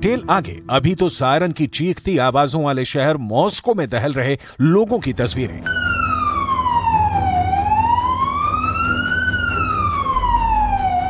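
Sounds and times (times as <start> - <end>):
air raid siren wailing: 5.7 - 11.0.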